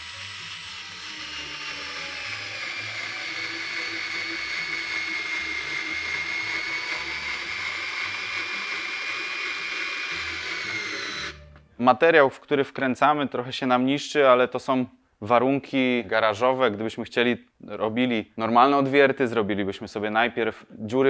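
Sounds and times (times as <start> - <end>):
cordless screwdriver whining: 0.0 - 11.6.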